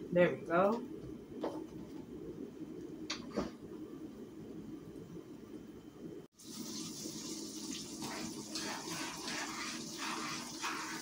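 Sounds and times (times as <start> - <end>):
chicken deep-frying in hot oil: 6.3 - 11.0.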